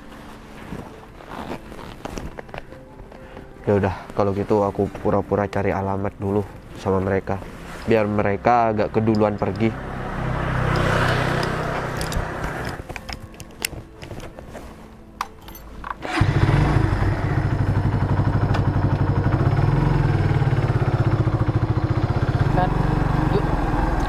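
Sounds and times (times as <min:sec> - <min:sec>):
motorcycle engine starting and idling: 0:09.2 - 0:12.9, 0:16.0 - 0:24.0.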